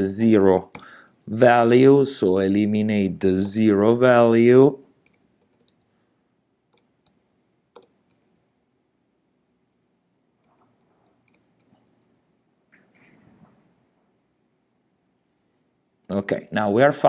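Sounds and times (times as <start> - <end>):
faint computer clicks: 5.0 - 5.9, 6.7 - 8.4, 9.7 - 12.9.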